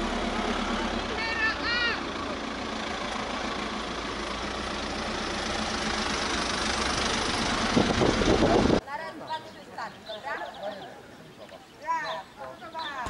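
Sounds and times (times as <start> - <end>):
vehicle engine running: 0.0 - 8.8.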